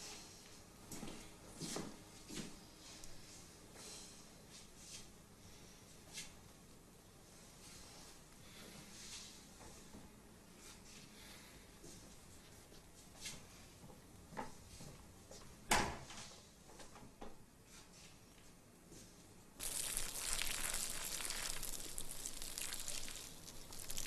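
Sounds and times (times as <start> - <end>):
steady hiss: 19.6 - 24.0.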